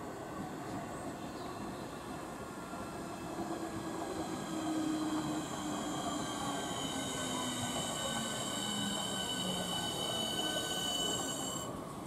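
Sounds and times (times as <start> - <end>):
wheels rumbling on rail: 0.0 - 12.0
train motor whine: 2.6 - 11.8
thin high whines: 3.2 - 11.8.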